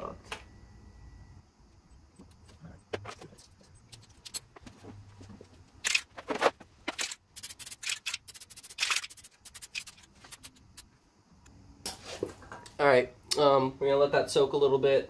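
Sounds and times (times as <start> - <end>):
aerosol can hissing: 7.4 - 10.6.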